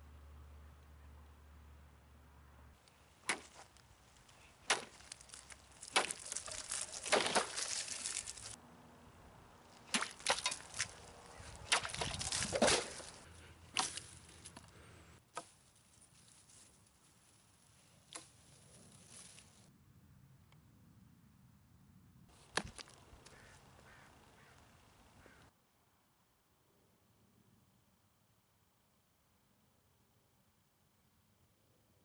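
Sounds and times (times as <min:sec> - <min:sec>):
branches rustling: 0:02.8 - 0:08.6, 0:09.5 - 0:19.7, 0:22.3 - 0:25.4
blade chopping strikes: 0:03.2 - 0:03.7, 0:04.6 - 0:07.7, 0:09.8 - 0:10.9, 0:13.7 - 0:14.2.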